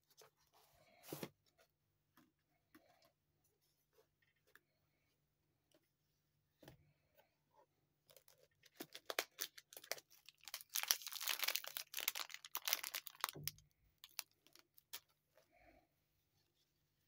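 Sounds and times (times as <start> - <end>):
plastic wrapping crinkling: 8.1 - 15.1.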